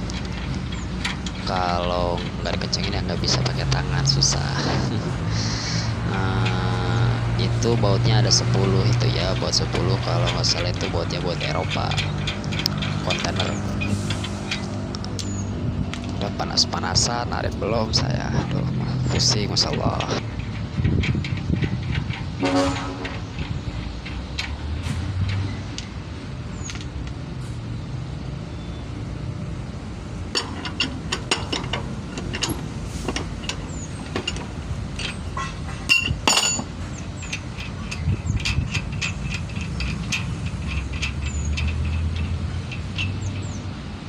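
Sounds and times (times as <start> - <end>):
traffic rumble: 0.0 - 44.0
tools clinking on steel rim: 18.4 - 24.6, 30.3 - 43.8.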